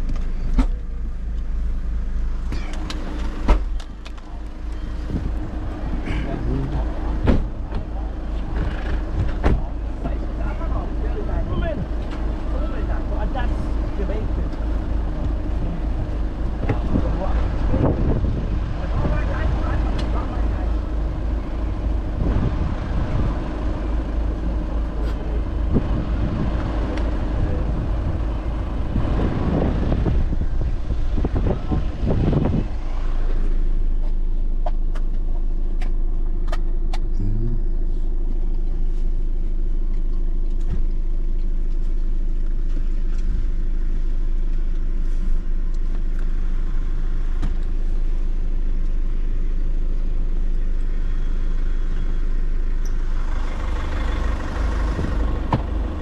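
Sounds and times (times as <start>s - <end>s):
low engine rumble: 0.0s - 56.0s.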